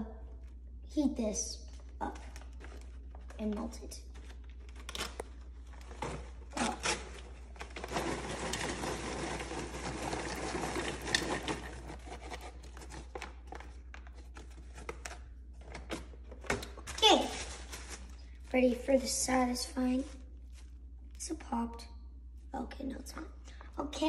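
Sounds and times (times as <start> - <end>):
paper bag crinkling: 1.7 - 15.1, 16.8 - 18.6
popcorn poured into bowl: 7.7 - 12.0.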